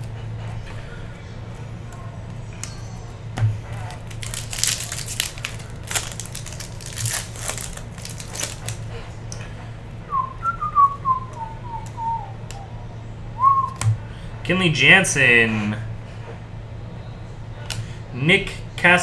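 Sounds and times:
foil wrapper tearing and crinkling: 3.7 - 8.8
person whistling a tune: 10.1 - 12.8, 13.4 - 13.8.

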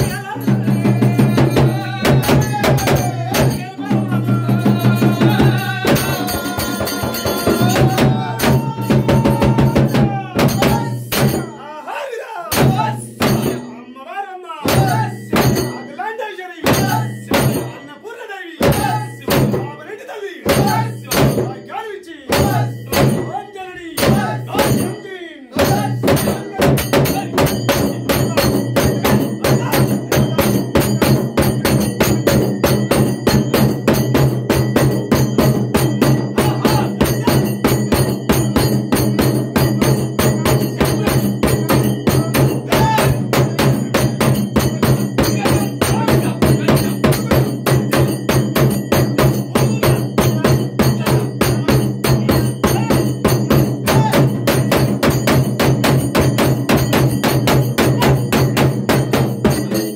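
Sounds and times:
rhythmic drumming: 0.0 - 59.9.

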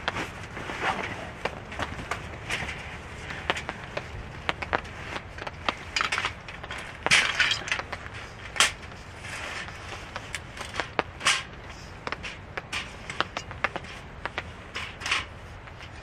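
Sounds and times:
rustling: 0.0 - 16.0
metal table clicks and clanks: 5.9 - 7.9, 14.7 - 16.0.

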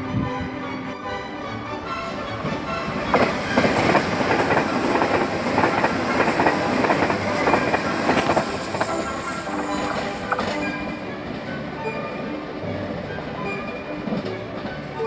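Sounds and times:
background music: 0.0 - 15.0
train rushing past: 0.0 - 15.0
wheels clacking over rail joints: 2.0 - 11.8.

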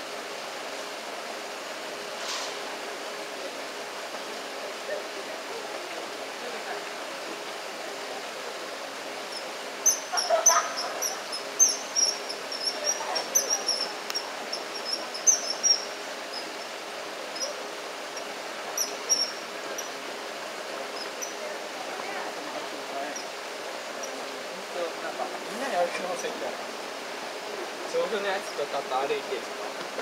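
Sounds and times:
kingfishers calling: 9.2 - 24.7.

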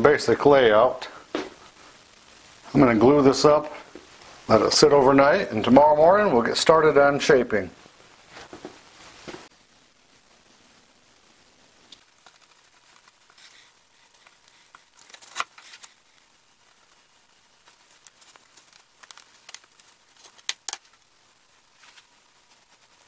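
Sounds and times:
wood strips clicking and knocking: 18.2 - 20.9.

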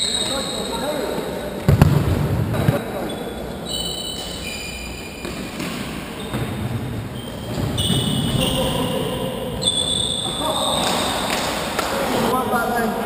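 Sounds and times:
trainers squeaking on hall floor: 0.0 - 1.8, 2.5 - 13.0
ball thuds: 1.7 - 2.8.

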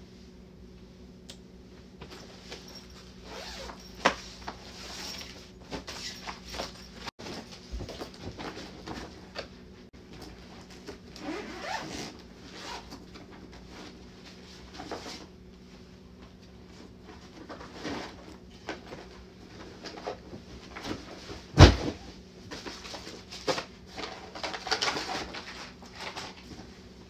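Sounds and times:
steady low hum: 0.0 - 24.3
rustling items in fabric bag: 2.0 - 9.4.

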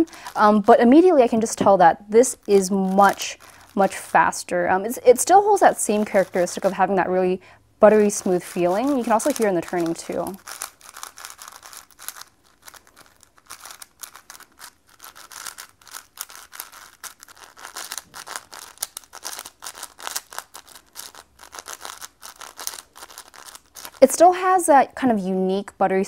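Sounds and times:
puzzle cube plastic clicks: 8.1 - 24.1.

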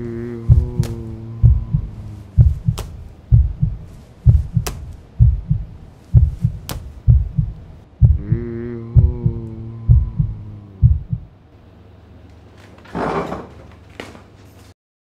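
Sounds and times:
heartbeat double thump: 0.5 - 11.3.

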